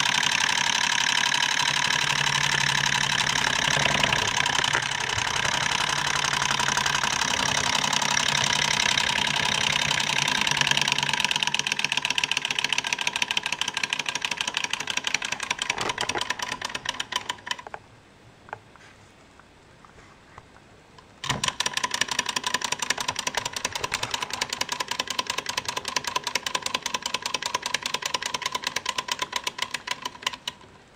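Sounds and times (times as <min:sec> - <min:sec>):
hot-air engine clattering: 0:00.0 - 0:17.6.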